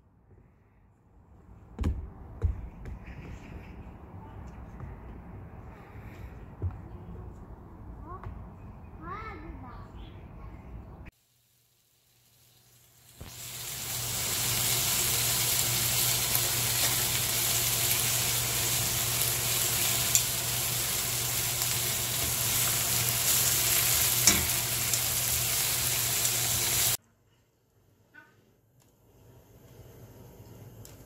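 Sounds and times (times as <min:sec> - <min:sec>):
meat sizzling in a pan: 0:11.2 - 0:27.0
tongs clicking against pan: 0:24.2 - 0:25.0.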